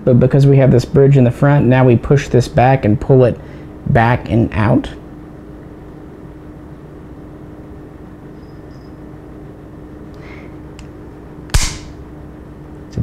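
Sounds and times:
low room hum: 0.0 - 13.0
sharp metallic pistol click: 11.5 - 12.0.

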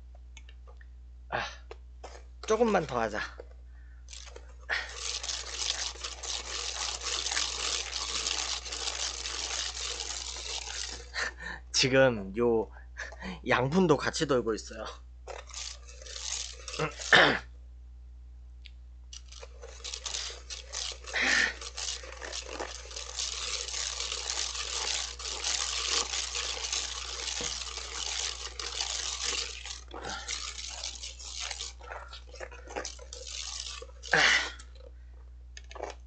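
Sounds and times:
whisk rattling in metal bowl: 4.1 - 11.3, 14.6 - 17.4, 19.2 - 34.9.

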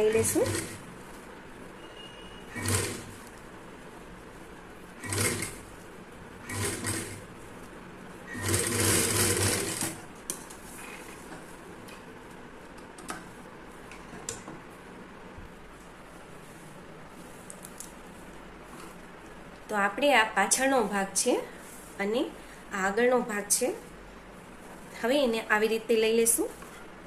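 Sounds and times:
sewing machine stitching: 0.0 - 0.9, 2.5 - 3.3, 5.0 - 5.7, 6.4 - 7.3, 8.3 - 10.0.

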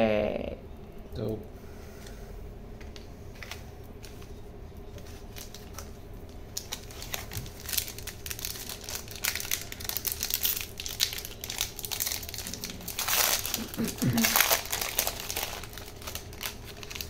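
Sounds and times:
foil wrapper crinkling and tearing: 5.2 - 17.0.

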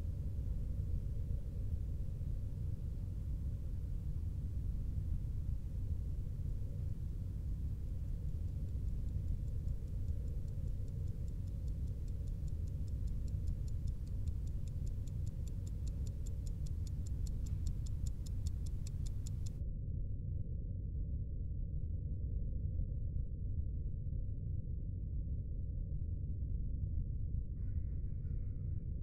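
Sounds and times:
alarm clock ticking: 8.2 - 19.6.

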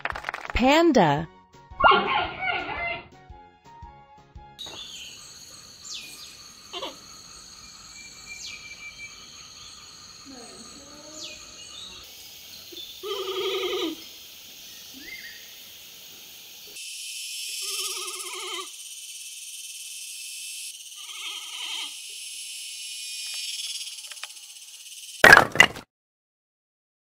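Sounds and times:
giant panda bleating: 1.8 - 3.1, 13.0 - 14.0, 17.6 - 18.7, 21.0 - 22.0
high-pitched background hiss: 4.6 - 25.2.

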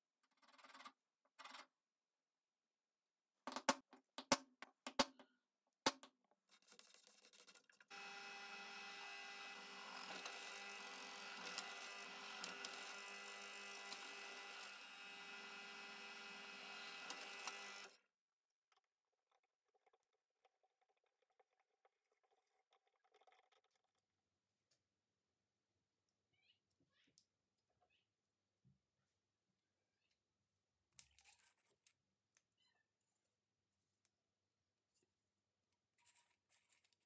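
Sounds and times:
drill press drilling steel pipe: 7.9 - 17.9.

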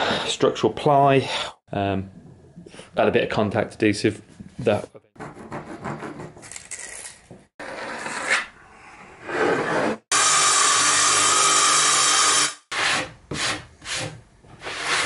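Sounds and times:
power saw cutting plywood: 9.3 - 13.0.

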